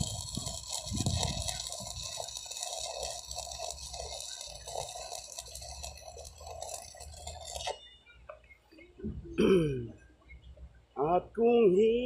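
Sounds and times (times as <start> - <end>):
welding arc crackling: 0.0 - 7.8.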